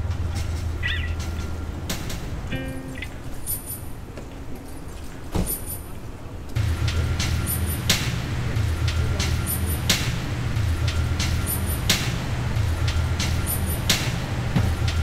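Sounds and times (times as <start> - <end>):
slow beat with bass line: 6.6 - 15.0.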